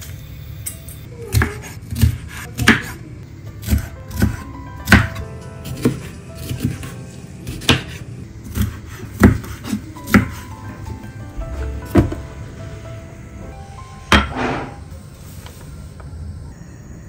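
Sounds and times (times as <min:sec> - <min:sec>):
knife chopping on cutting board: 0:01.3 - 0:03.0, 0:03.6 - 0:06.9, 0:07.5 - 0:10.4
background music: 0:03.2 - 0:15.0.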